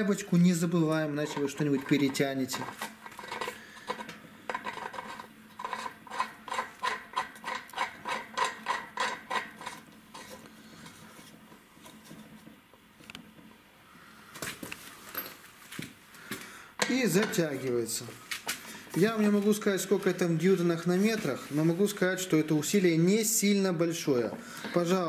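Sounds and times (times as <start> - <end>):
soft metal rubbing: 0.0 - 12.4.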